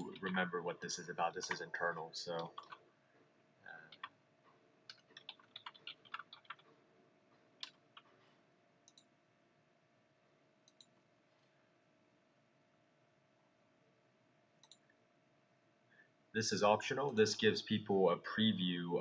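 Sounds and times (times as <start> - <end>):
keyboard typing clicks: 2.3 - 2.8, 3.9 - 4.2, 4.9 - 6.8, 7.4 - 8.2, 8.8 - 9.1, 10.6 - 11.0, 14.6 - 14.9.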